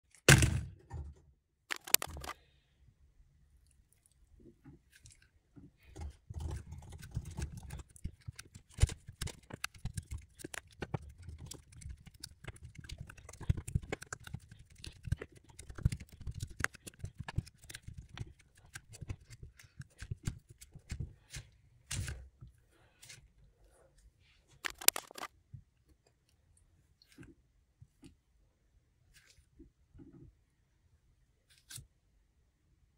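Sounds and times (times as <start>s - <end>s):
small clicks: 1.7s - 2.4s, 24.6s - 25.3s
spoon squishing modelling clay: 3.4s - 30.4s, 31.4s - 32.0s.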